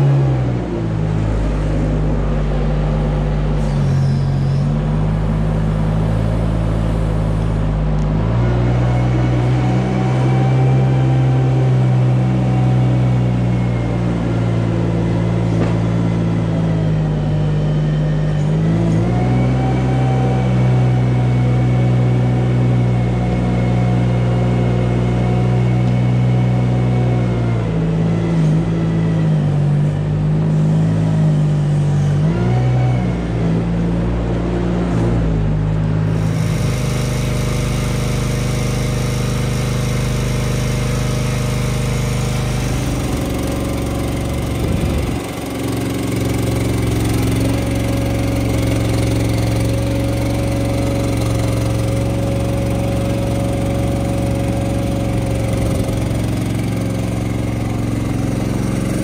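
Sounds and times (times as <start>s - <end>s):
tractor engine running: 0.0s - 32.2s, 33.3s - 59.0s
tractor scraping manure: 36.1s - 59.0s.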